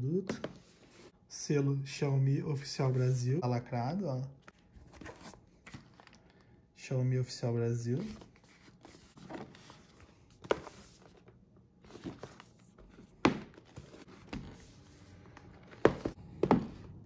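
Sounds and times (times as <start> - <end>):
cardboard rustling: 4.5 - 6.2, 7.9 - 17.0.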